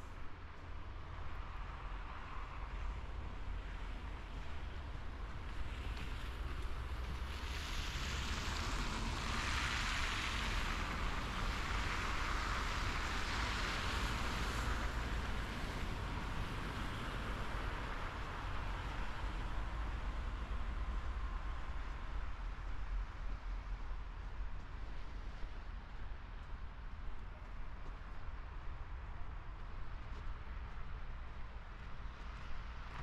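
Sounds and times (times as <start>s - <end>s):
tyres hissing on wet road: 6.2s - 18.1s.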